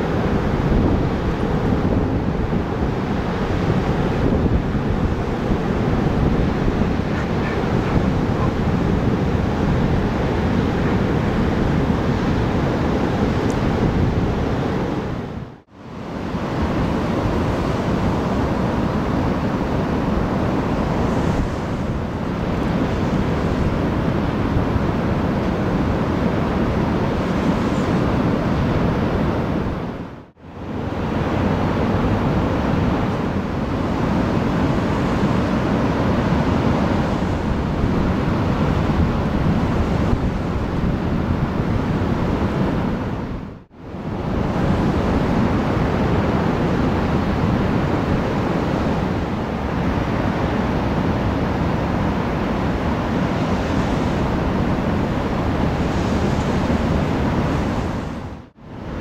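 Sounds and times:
ocean waves breaking: 0.0s - 59.0s.

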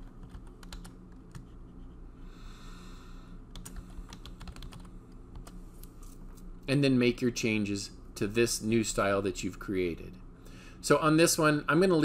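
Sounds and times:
keyboard typing: 0.0s - 1.6s, 3.5s - 5.6s.

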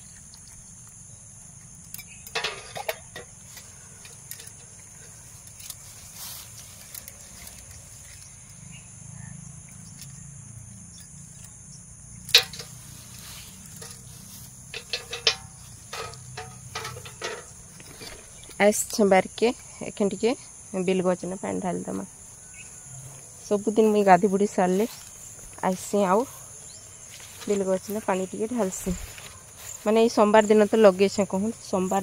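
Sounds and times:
insects chirring: 0.0s - 32.0s
light knocks of brass pot: 2.3s - 3.4s, 12.3s - 12.8s, 13.8s - 14.1s, 14.7s - 18.4s
metallic clink: 12.3s - 12.9s, 13.6s - 18.4s.

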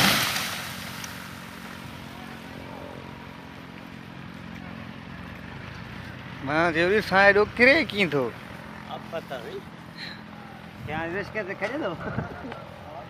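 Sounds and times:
tree crashing down: 0.0s - 1.4s.

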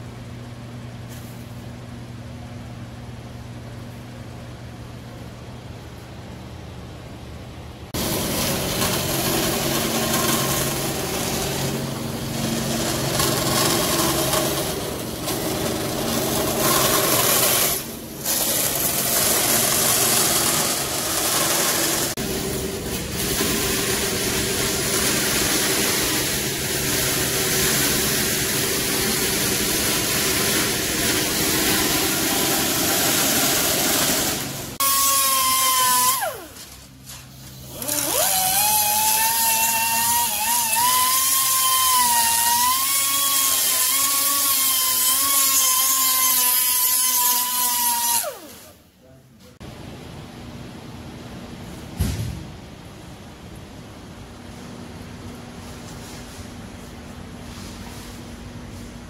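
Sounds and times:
band saw cutting sheet metal: 8.0s - 36.7s, 37.6s - 48.8s
sanding drum whine: 8.0s - 48.1s, 57.4s - 58.9s.

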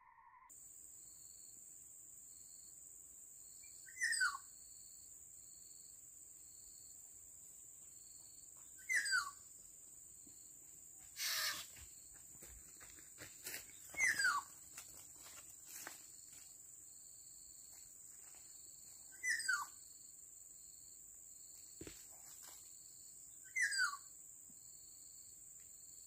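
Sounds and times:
bird harsh downward calls: 8.8s - 9.3s, 11.2s - 11.8s, 14.0s - 14.4s
high-pitched insect drone: 11.0s - 21.0s.

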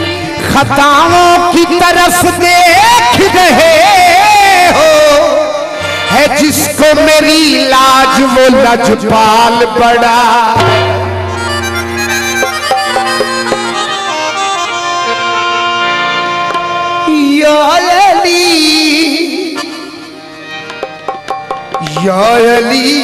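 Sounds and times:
man singing: 0.0s - 11.2s, 16.8s - 20.2s, 21.8s - 23.0s
harmonium chords: 0.0s - 23.0s
tabla strokes: 10.6s - 14.0s, 20.6s - 22.5s.

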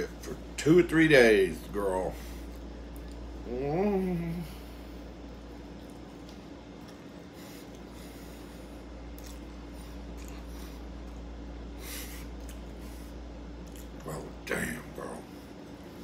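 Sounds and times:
man chewing food: 2.4s - 3.5s, 4.7s - 14.1s.

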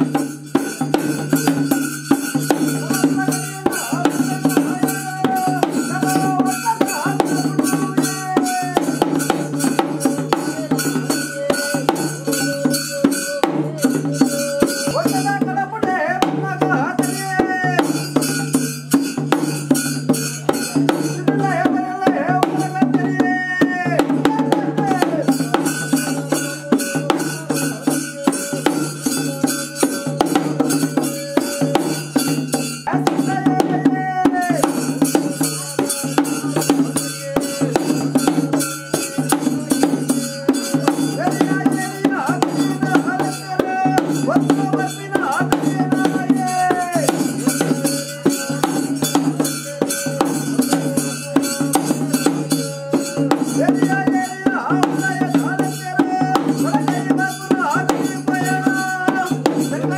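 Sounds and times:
drums and cymbals beating: 0.0s - 59.9s.

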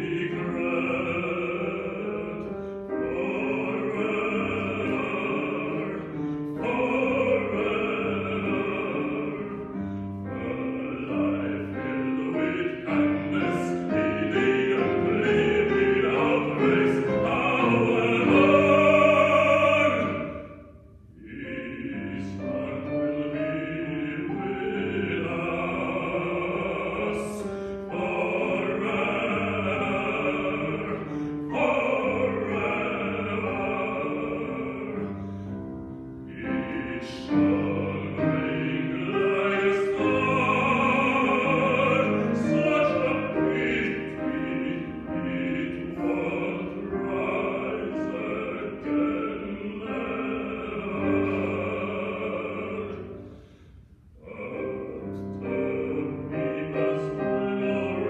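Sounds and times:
man singing with vibrato: 0.0s - 35.6s, 36.2s - 53.3s, 54.2s - 58.0s
grand piano: 0.0s - 58.0s.

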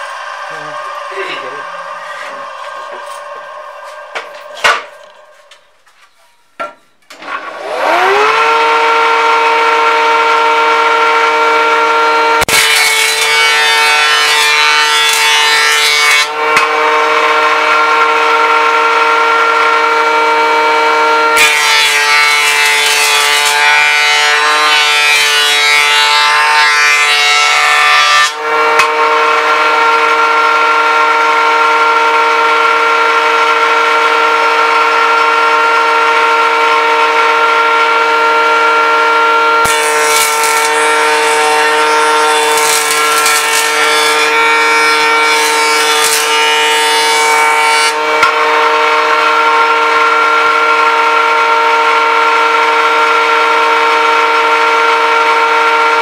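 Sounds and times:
jointer motor whine: 0.0s - 5.7s, 7.1s - 27.6s, 28.2s - 56.0s
rough wood cutting noise: 0.0s - 53.2s.

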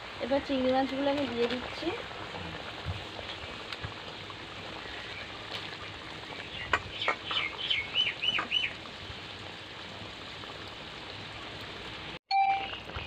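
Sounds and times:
curry bubbling in a pan: 0.0s - 12.2s
bird chirping: 6.4s - 8.7s.

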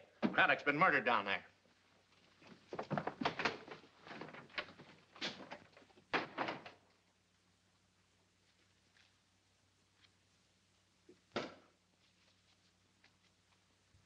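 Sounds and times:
door opening and shutting: 2.9s - 6.8s.

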